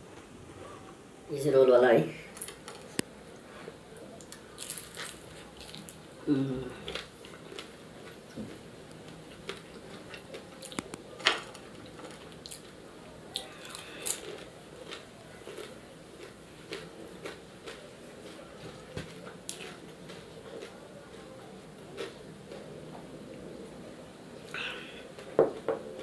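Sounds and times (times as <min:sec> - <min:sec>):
crispy food crunches: 0:04.2 - 0:06.0, 0:06.7 - 0:21.3
wet chewing sounds: 0:06.8 - 0:22.8.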